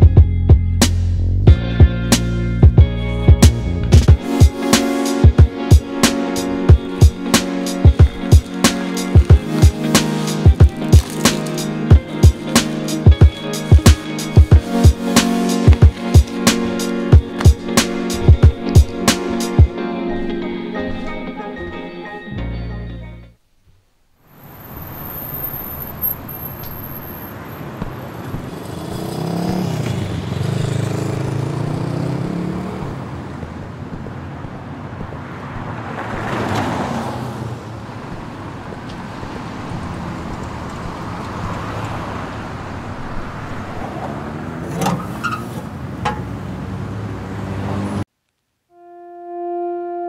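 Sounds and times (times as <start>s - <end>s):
cars driving past: 24.3s - 48.1s.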